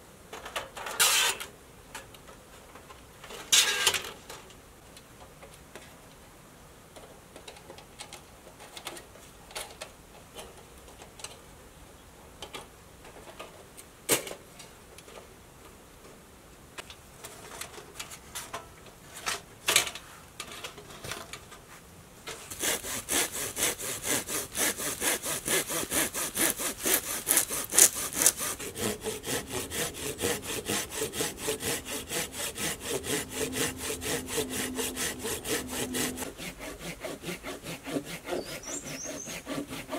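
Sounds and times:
hand saw cutting log: 0:22.3 - 0:39.9.

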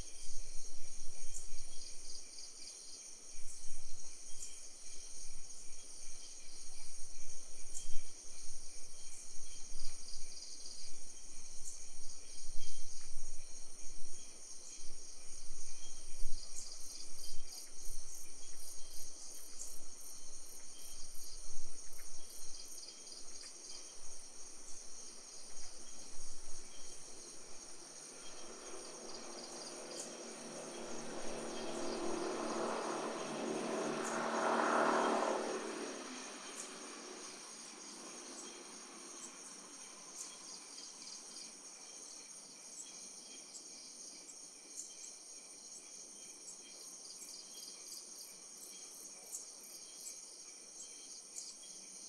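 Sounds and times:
crickets and insects chirping: 0:00.0 - 0:52.0
distant engine passing: 0:27.6 - 0:40.0.

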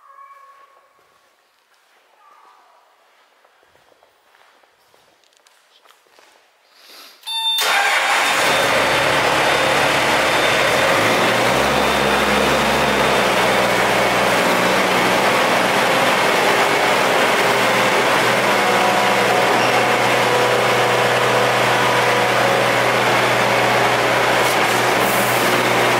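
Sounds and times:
diesel engine cranking: 0:07.6 - 0:25.9
diesel engine running: 0:07.6 - 0:25.9.

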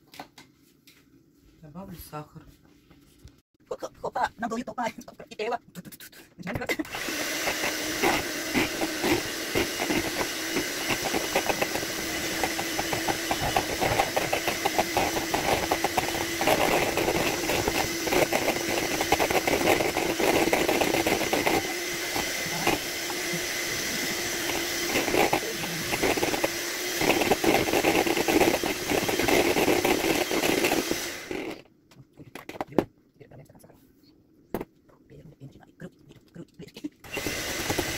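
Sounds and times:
electric hand mixer whisking: 0:06.6 - 0:31.6, 0:37.0 - 0:37.9.

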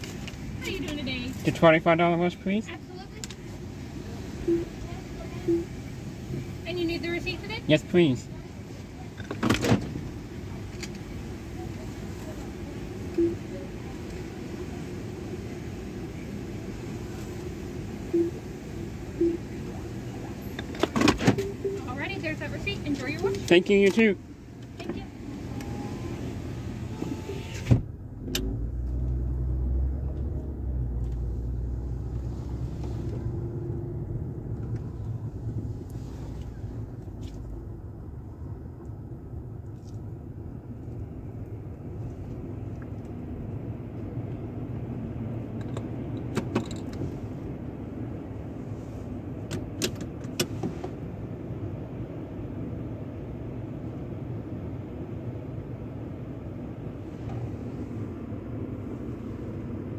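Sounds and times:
car engine rumbling and idling: 0:00.0 - 0:59.9
power window closing: 0:24.8 - 0:28.6.

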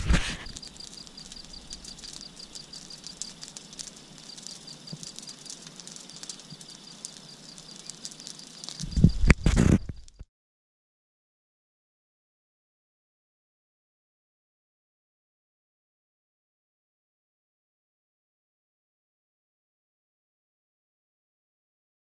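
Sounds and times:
loud rustle: 0:00.0 - 0:02.4.

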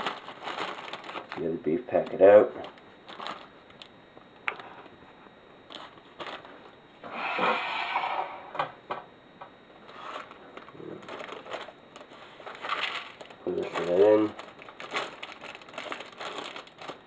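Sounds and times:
plastic wrapper crinkling: 0:00.0 - 0:03.9, 0:05.7 - 0:06.5, 0:09.9 - 0:17.0.

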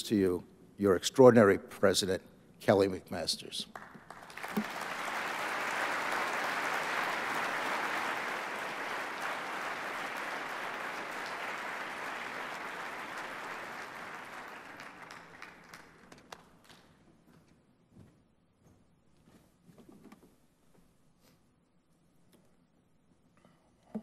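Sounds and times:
large audience applauding: 0:03.7 - 0:16.9.

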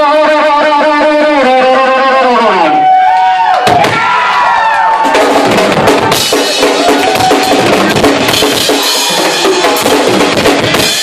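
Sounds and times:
distorted bass guitar: 0:00.0 - 0:02.8, 0:05.2 - 0:11.0
rapid drum hits: 0:03.6 - 0:04.2, 0:05.0 - 0:11.0.

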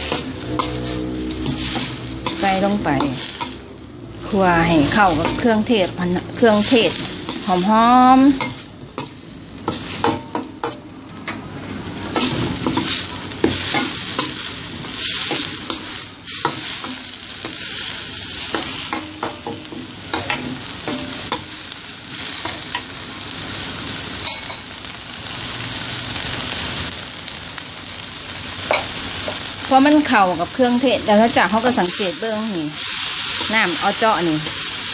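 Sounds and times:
metal spatula scraping pan: 0:00.0 - 0:10.9, 0:12.1 - 0:21.6
food sizzling in a wok: 0:00.0 - 0:34.9.

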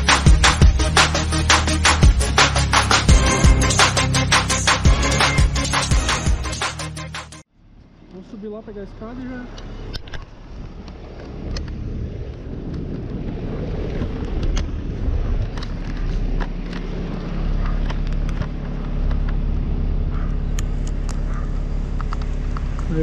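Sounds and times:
diesel engine idling: 0:16.2 - 0:23.0.

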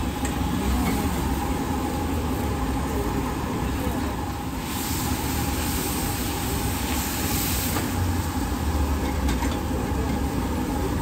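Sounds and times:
hiss: 0:04.5 - 0:08.3.

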